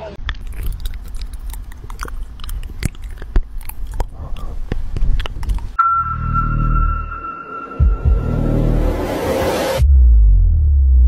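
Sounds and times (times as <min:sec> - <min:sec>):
cat chewing on a cable: 0:00.3 - 0:05.8.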